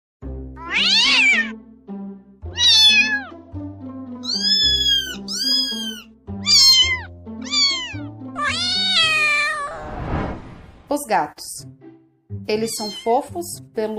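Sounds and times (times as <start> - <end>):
background music: 0.2 - 9.8, 10.4 - 13.9
cat meowing: 0.6 - 1.5, 2.5 - 3.4, 4.2 - 9.8, 12.6 - 13.2.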